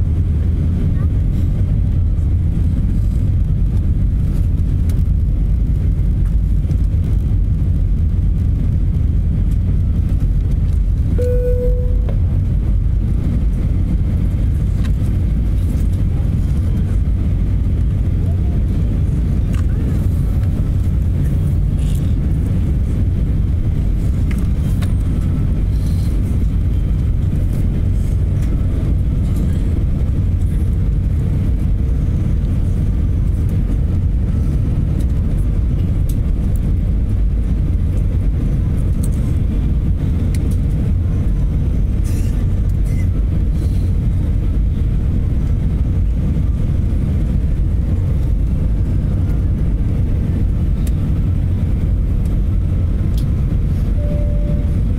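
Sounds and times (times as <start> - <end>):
jet engine rumble in cabin: 0.0 - 54.9
faint steady hum: 11.1 - 12.6.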